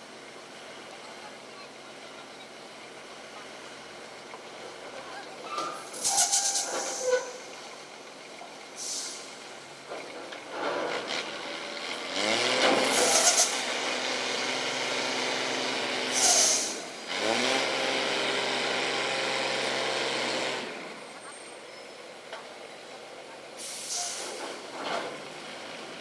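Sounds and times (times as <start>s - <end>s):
air brake hisses: 5.8s - 7.4s, 8.8s - 9.3s, 12.9s - 13.6s, 16.1s - 16.9s, 23.6s - 24.6s
diesel truck engine revving: 10.5s - 21.0s.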